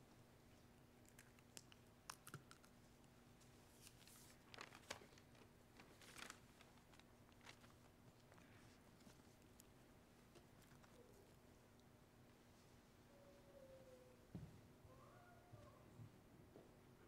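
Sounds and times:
faint steady low hum: 0.0s - 17.0s
soft rustles: 3.3s - 11.6s.

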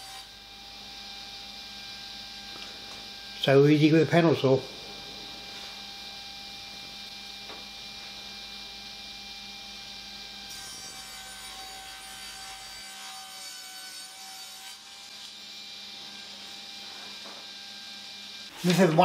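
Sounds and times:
panel saw cutting plywood: 10.5s - 17.6s, 18.5s - 19.0s.

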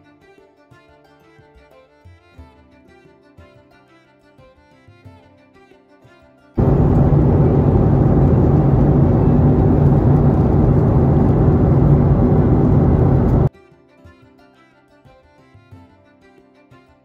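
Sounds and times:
jet airliner cabin roar: 6.6s - 13.5s.

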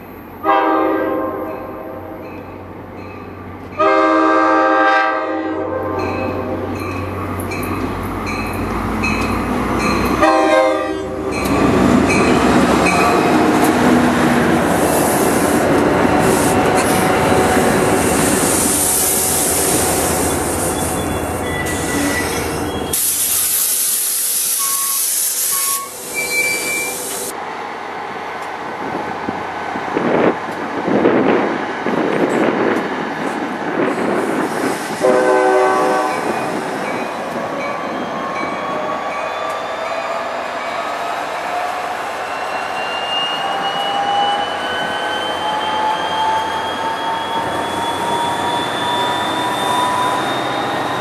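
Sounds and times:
locomotive horn blast: 0.4s - 2.3s, 3.8s - 6.7s, 10.2s - 11.4s, 35.0s - 36.5s
train wheels on rails: 1.2s - 51.0s
high wheel squeal: 16.3s - 27.3s, 36.2s - 51.0s.

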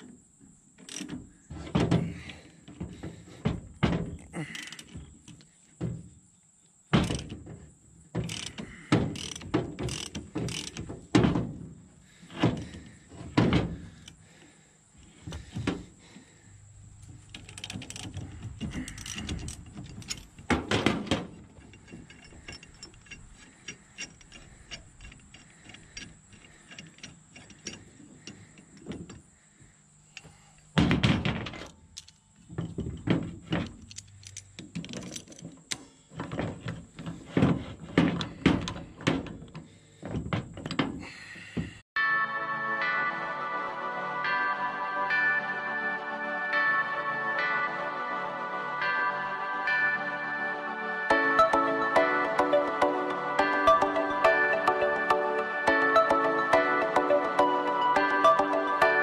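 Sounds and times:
ratchet wrench clicking: 8.2s - 8.6s, 9.2s - 10.8s, 18.8s - 20.2s.

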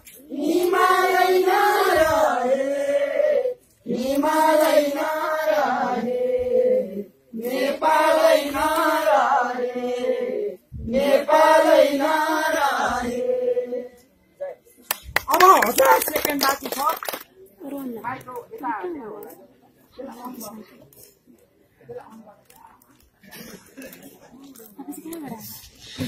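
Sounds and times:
group of people singing: 0.0s - 14.2s.

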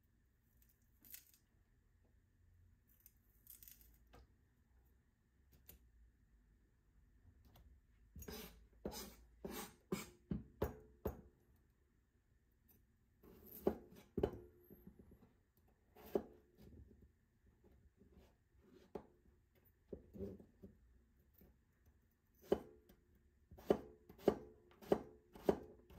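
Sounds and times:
knife cutting on plastic board: 8.2s - 10.8s, 15.9s - 16.7s, 22.4s - 22.9s, 23.5s - 25.9s.

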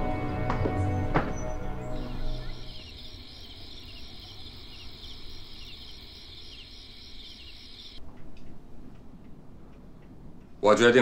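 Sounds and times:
insects chirring: 1.7s - 8.0s.

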